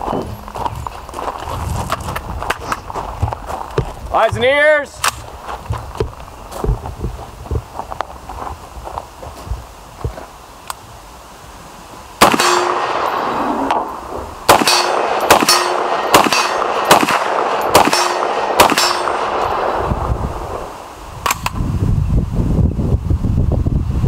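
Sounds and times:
rifle shots: 12.2 - 21.6
steel targets clanging: 14.6 - 19.6
sharp clicks: 21.2 - 21.6.

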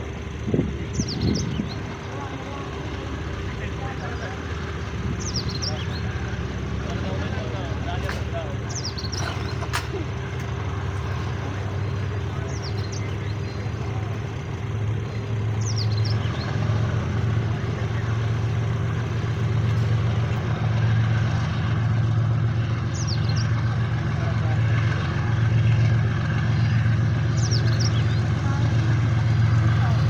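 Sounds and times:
diesel locomotive engine hum: 0.0 - 30.0.

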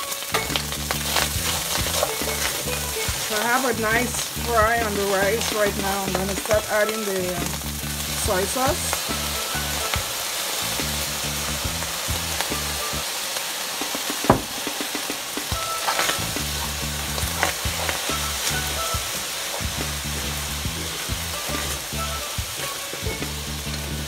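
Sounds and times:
rice sizzling in pot: 0.0 - 24.0
sharp knock: 14.3 - 14.8.

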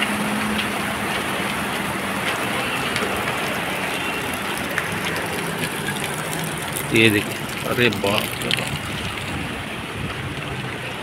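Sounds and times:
heavy rain on flooded street: 0.0 - 11.0.

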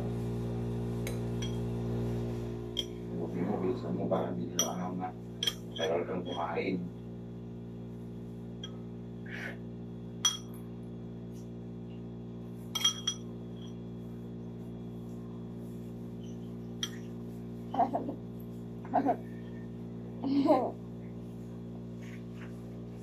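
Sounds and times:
steady low hum: 0.0 - 23.0
spoon clinking ceramic bowl: 4.6 - 4.8, 5.4 - 6.5, 10.2 - 10.6, 12.8 - 13.8.

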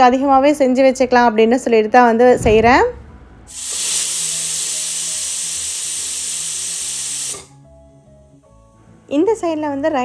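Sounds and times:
pressure cooker steam hissing: 3.5 - 7.6.

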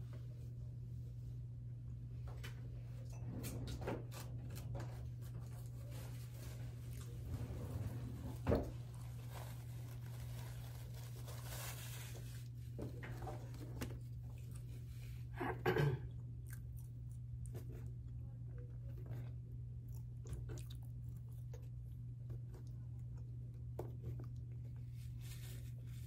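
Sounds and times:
rustling and tearing: 8.7 - 15.3, 24.0 - 26.0.

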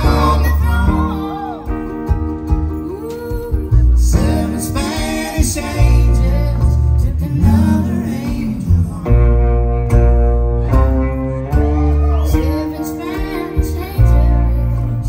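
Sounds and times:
woman singing: 0.0 - 2.0, 2.6 - 9.0, 12.3 - 15.0
electric guitar: 0.0 - 15.0
mandolin: 0.0 - 15.0
upright bass: 0.0 - 15.0.

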